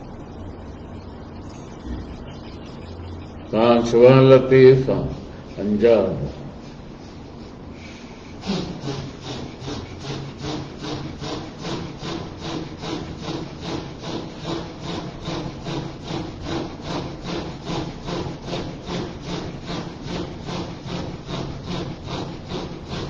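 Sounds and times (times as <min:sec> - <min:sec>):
low steady hum: 0:00.0 - 0:23.0
man breathing rhythmically: 0:06.5 - 0:23.0.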